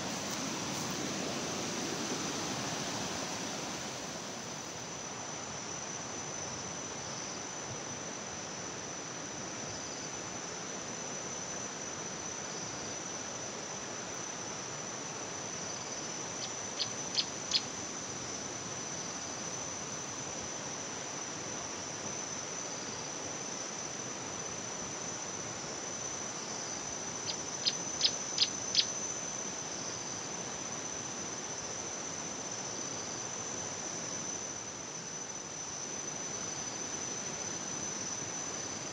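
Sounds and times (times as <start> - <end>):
even hiss: 0.0 - 5.7
high-pitched insect trill: 0.0 - 38.9.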